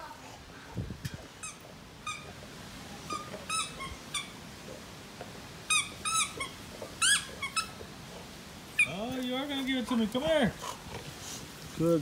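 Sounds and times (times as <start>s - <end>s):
squeaky toy squeaks: 1.4s - 2.3s, 3.1s - 4.4s, 5.7s - 7.8s, 8.8s - 9.0s.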